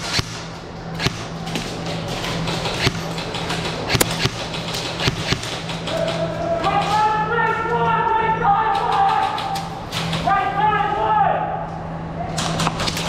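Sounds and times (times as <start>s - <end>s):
airsoft gun shots: 0.0s - 1.3s, 2.7s - 3.1s, 3.9s - 6.1s.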